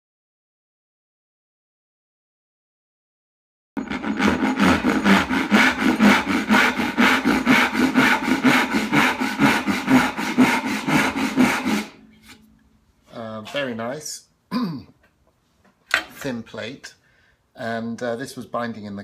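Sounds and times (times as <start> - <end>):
hand saw cutting wood: 3.8 - 12.4.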